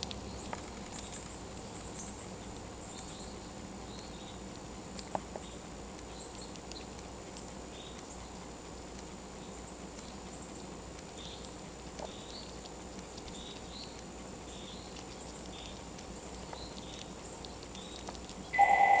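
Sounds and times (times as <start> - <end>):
squirrel gnawing: 0.0 - 19.0
electronic beep: 18.6 - 19.0.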